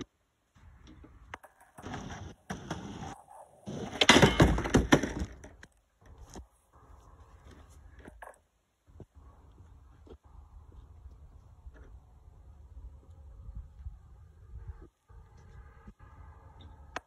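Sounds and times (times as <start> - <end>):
skateboard wheels rolling on wood: 0.6 - 6.4
skateboard banging on wood: 1.4 - 5.6.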